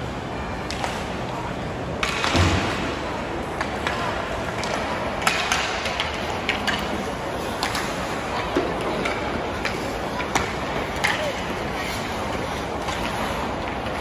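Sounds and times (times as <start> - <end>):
clacks of sticks and puck: 0.6 - 1.3, 2.0 - 14.0
skates scraping on ice: 3.5 - 14.0.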